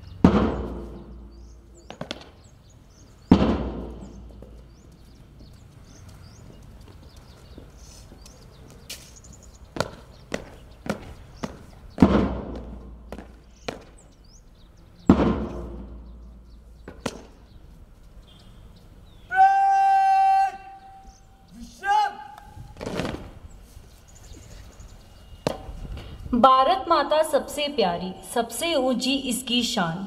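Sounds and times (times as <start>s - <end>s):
boots stamping on stone: 1.8s - 2.4s, 3.2s - 14.2s, 16.8s - 17.5s
person shouting command: 19.3s - 20.8s, 21.5s - 22.4s.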